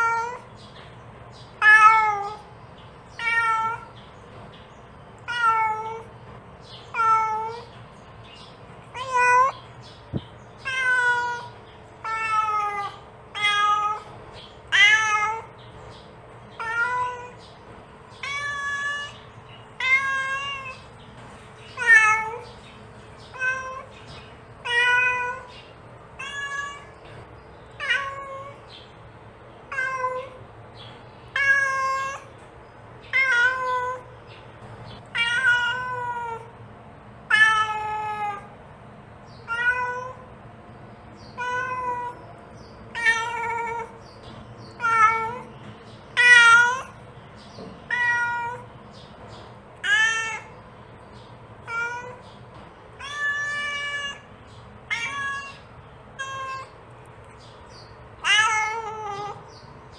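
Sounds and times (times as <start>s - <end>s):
cat meowing: 0.0s - 0.5s, 1.6s - 2.5s, 3.1s - 4.0s, 5.2s - 6.1s, 6.9s - 7.8s, 8.9s - 9.6s, 10.6s - 14.1s, 14.7s - 15.6s, 16.5s - 17.4s, 18.2s - 20.9s, 21.6s - 22.6s, 23.3s - 24.0s, 24.6s - 25.6s, 26.2s - 27.2s, 27.8s - 28.7s, 29.7s - 30.4s, 31.3s - 32.4s, 33.1s - 34.1s, 35.0s - 36.5s, 37.3s - 38.6s, 39.4s - 40.3s, 41.2s - 42.3s, 42.9s - 44.0s, 44.7s - 47.0s, 47.8s - 48.7s, 49.8s - 50.6s, 51.6s - 52.3s, 52.9s - 56.8s, 57.7s - 59.6s.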